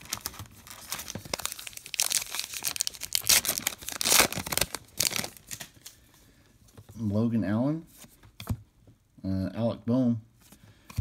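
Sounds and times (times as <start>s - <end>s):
foil wrapper tearing and crinkling: 0.0s - 5.8s.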